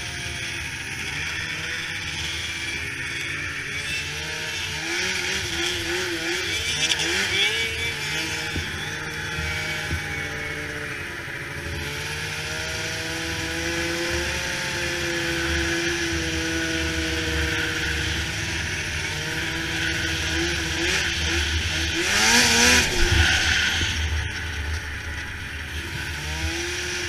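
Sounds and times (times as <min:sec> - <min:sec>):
snowmobile engine revving: 0:00.0 - 0:27.0
rush of noise: 0:16.3 - 0:27.0.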